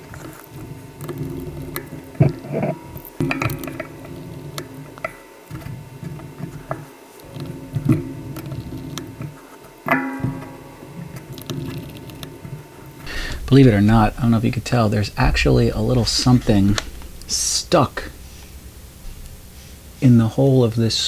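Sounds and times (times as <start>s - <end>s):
low rubbing on plastic: 13.0s - 20.0s.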